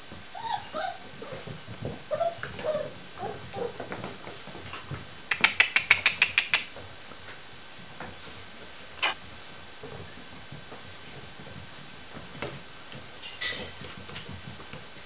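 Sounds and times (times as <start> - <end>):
puppies squeaking and grunting: 0.3 - 3.8
rapid sharp clicks: 5.3 - 6.7.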